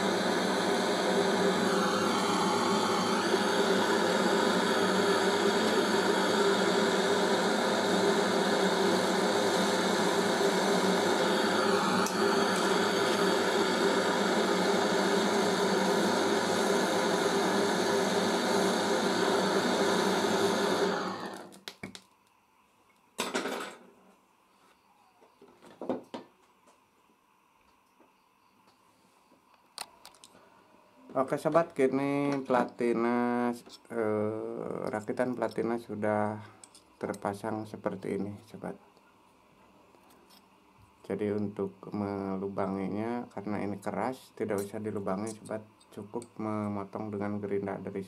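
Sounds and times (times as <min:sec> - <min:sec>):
torch flame hissing: 0:00.0 - 0:21.8.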